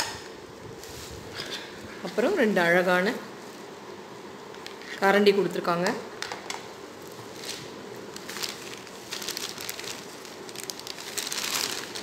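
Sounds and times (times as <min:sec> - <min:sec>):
bubble wrap crinkling: 0:07.0 - 0:12.0.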